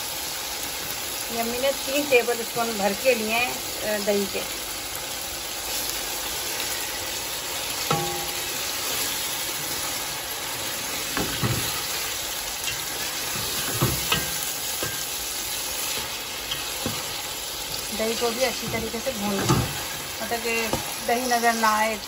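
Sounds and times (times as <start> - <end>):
chicken sizzling in hot oil: 0.0 - 22.0
spatula scraping and knocking pot: 7.9 - 8.4, 12.6 - 15.2, 15.9 - 17.3.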